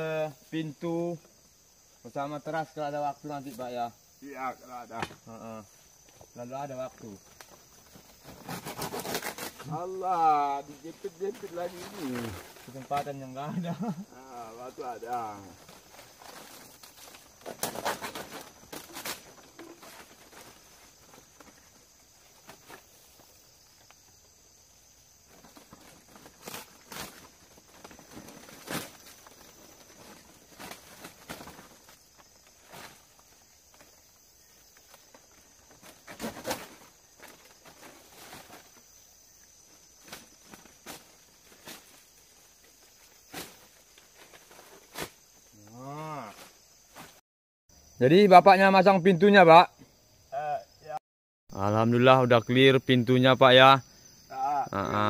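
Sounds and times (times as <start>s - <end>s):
high hum of insects: 0.0s - 55.0s
knocks and rustles of hand work: 34.8s - 38.8s.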